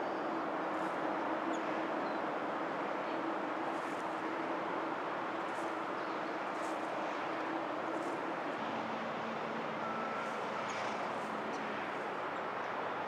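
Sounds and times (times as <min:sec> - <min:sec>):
distant road traffic hum: 0:00.0 - 0:13.0.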